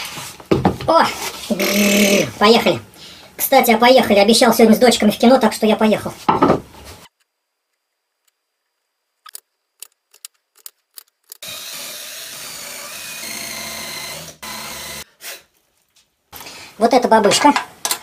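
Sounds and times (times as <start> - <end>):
cordless drill boring into wood: 11.4 - 15.0.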